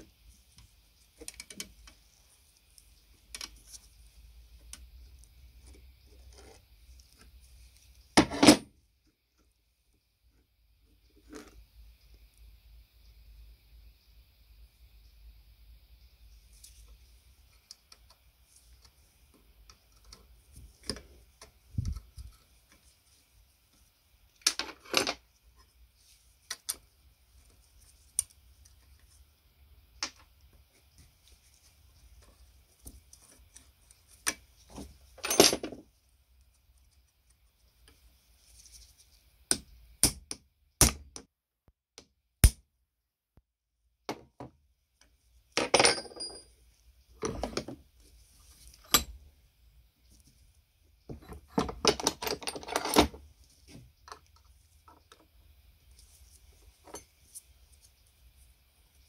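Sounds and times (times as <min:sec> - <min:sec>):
metal parts clinking: 0:45.6 - 0:46.5.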